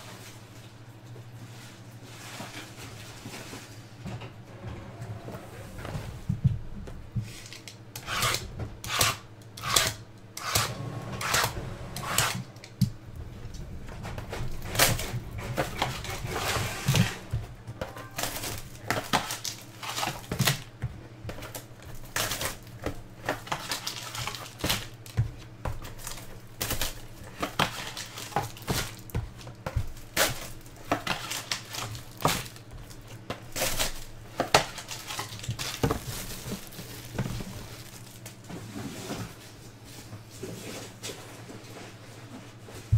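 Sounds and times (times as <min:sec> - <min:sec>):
foil wrappers crinkling: 0:00.0 - 0:03.9, 0:12.5 - 0:38.5
steady low hum: 0:00.0 - 0:42.9.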